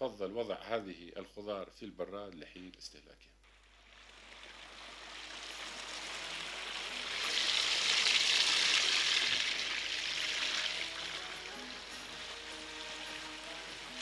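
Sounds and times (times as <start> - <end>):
waterfall splashing into pond: 3.5 - 14.0.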